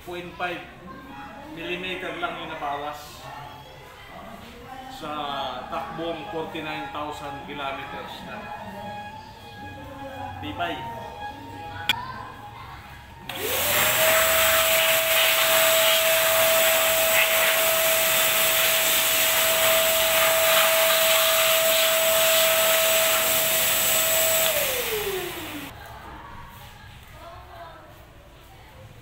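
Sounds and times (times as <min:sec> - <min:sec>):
shop vacuum motor whine: 0:13.3 - 0:25.7.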